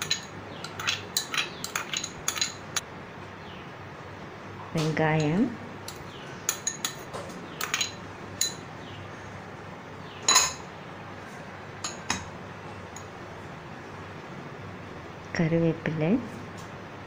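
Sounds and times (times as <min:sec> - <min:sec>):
glass bowls clinking together: 0:00.0 - 0:02.6, 0:05.2 - 0:08.6, 0:10.3 - 0:10.7.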